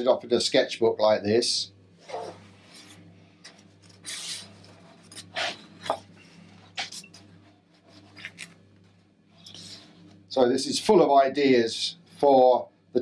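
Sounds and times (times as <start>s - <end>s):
hand brushing paper: 4.0s - 5.7s, 7.7s - 8.5s, 9.4s - 10.0s
sketchbook pages turning: 7.8s - 8.6s.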